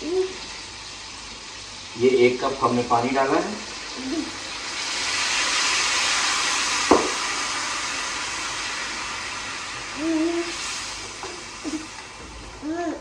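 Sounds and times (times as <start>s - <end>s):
meat sizzling in a pan: 0.0s - 13.0s
sharp knock: 6.9s - 7.2s.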